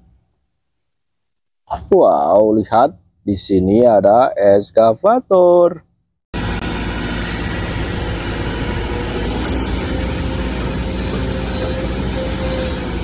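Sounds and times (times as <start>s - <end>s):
excavator diesel engine running: 6.4s - 13.0s.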